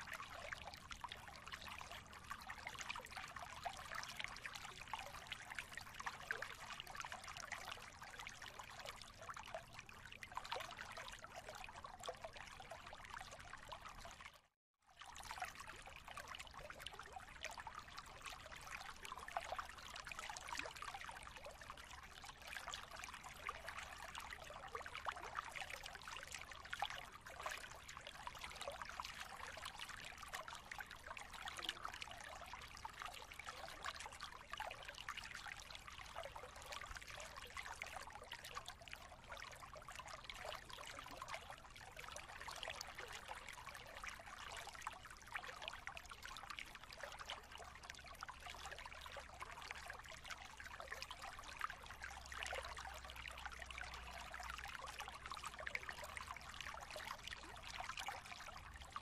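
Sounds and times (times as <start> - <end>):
running trickling water: 45.2 - 59.0.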